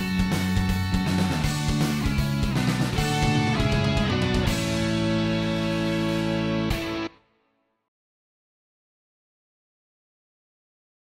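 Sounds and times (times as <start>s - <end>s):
steady beat: 0.0s - 5.8s
strummed guitar chords: 0.0s - 7.4s.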